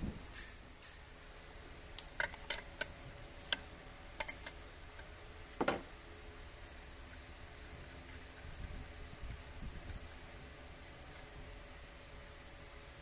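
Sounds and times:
metallic clicks and clinks: 0.3 - 1.2, 4.2 - 4.6.

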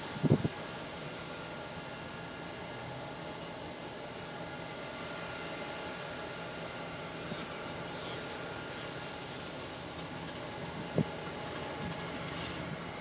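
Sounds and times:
constant high tone: 0.0 - 13.0
locomotive engine drone: 0.0 - 13.0.

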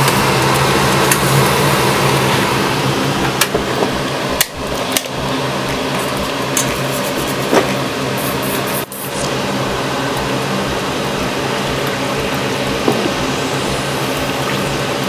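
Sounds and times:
fan-like hum: 0.0 - 15.0.

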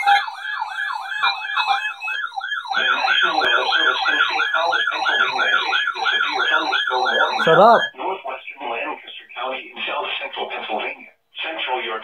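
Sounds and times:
warbling alarm sirens: 0.0 - 7.9.

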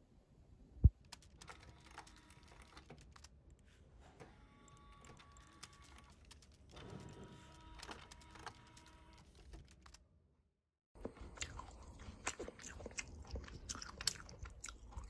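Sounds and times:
keyboard typing: 1.0 - 3.4, 4.7 - 10.0.

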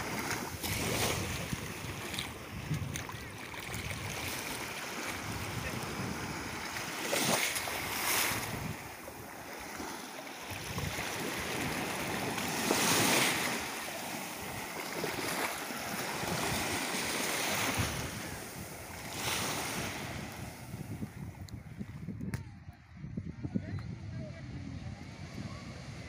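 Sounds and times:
small waves breaking on shore: 0.0 - 21.5.

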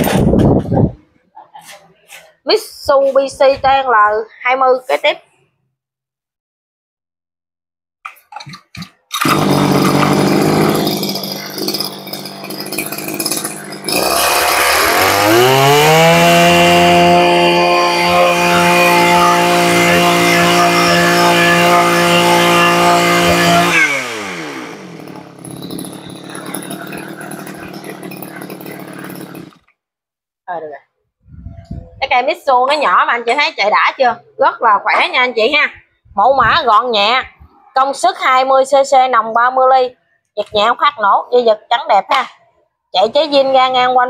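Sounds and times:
pull-start cord pulls: 8.2 - 16.6, 22.7 - 29.7
brush cutter engine: 9.2 - 29.7.

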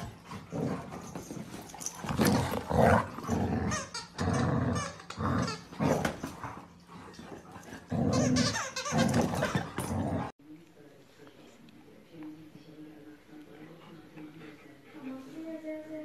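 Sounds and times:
dogs play-growling: 0.0 - 10.4.

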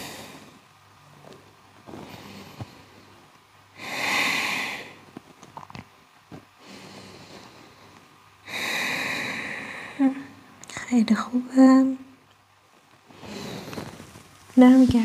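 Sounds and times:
person breathing deeply through nose: 3.8 - 5.0, 6.6 - 10.0, 13.1 - 14.0.

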